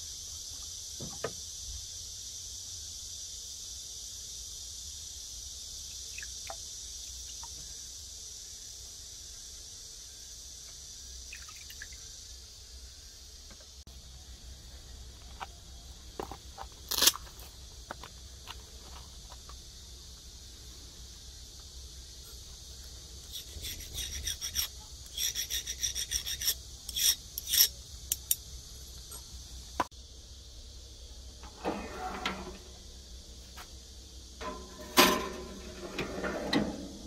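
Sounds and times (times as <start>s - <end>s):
file scraping steel blade: 23.3s - 28.3s.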